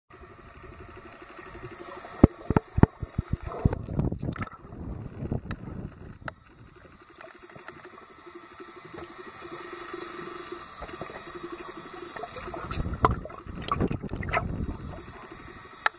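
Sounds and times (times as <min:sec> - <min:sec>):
faint underwater hum: 0:00.1 - 0:15.9
bubbling rush: 0:00.6 - 0:15.9
sharp underwater clicks and knocks: 0:02.2 - 0:06.6, 0:12.6 - 0:14.6.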